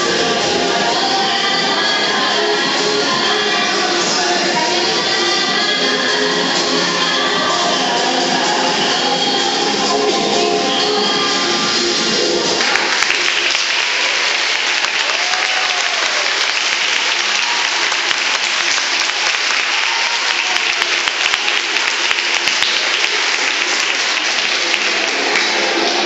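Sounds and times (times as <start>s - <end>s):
audience applauding: 12.6s - 26.0s.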